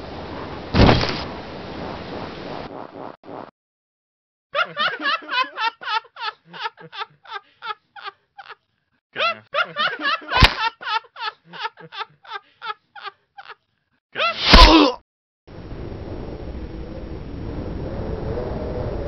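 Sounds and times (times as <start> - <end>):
heavy thud: 0.7 - 1.2
sharp smack: 0.8 - 1.3, 10.4 - 10.6, 14.4 - 14.8
cartoon man laughing: 4.6 - 14.7
man yelling: 14.2 - 15.0.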